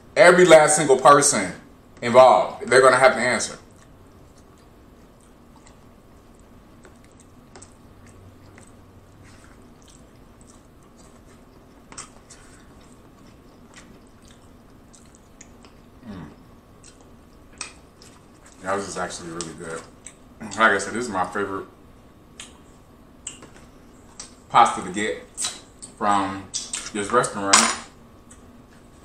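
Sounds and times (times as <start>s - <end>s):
man chewing pasta: 3.6s - 20.8s.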